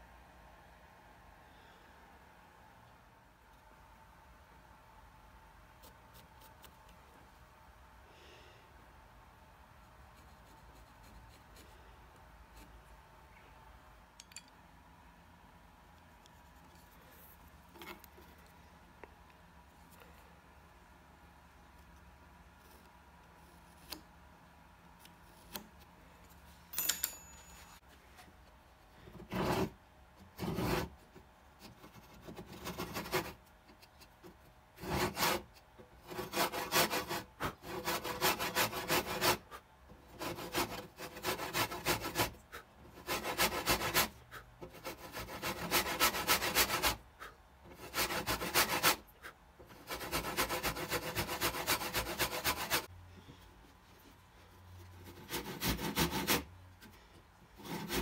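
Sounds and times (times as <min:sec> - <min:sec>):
hand saw cutting wood: 0:34.8 - 0:52.9, 0:55.0 - 0:56.5, 0:57.6 - 0:58.0.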